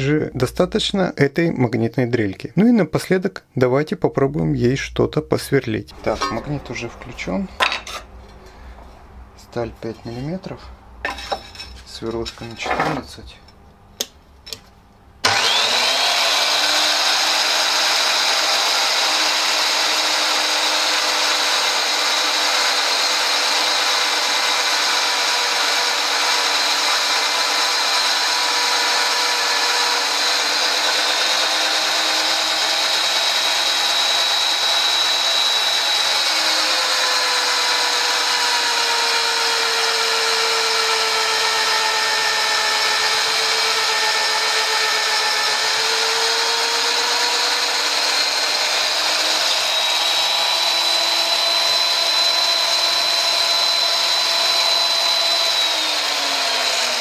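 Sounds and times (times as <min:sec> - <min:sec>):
drill motor whining: 0:15.2 - 0:57.0.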